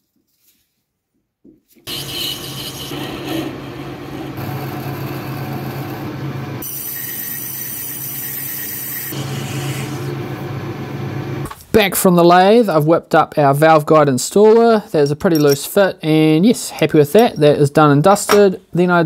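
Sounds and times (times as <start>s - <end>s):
drill cutting into brass: 1.9s - 10.2s
lathe motor humming: 1.9s - 11.4s.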